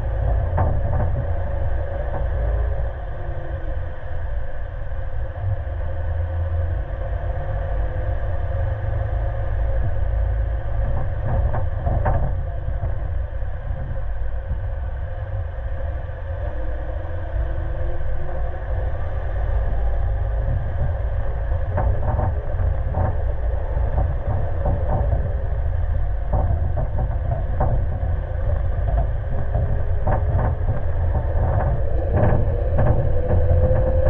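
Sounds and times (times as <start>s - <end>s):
knocks and rattles over bumps: 0.0s - 2.5s, 9.8s - 14.1s, 20.5s - 34.0s
vehicle engine rumble: 0.0s - 34.0s.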